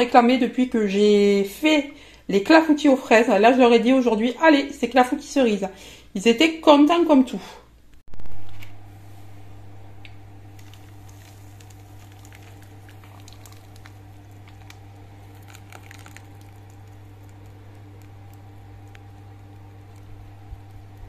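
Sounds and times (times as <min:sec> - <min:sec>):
steady low hum: 0:07.8 - 0:21.0
batter pouring with wet squishing: 0:10.5 - 0:21.0.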